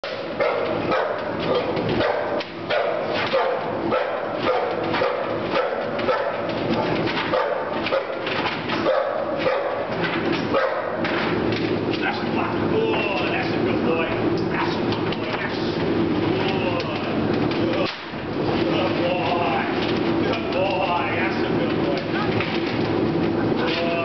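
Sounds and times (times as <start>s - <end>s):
dog barking rapidly: 0.4s - 6.5s, 7.3s - 9.9s, 10.5s - 11.0s.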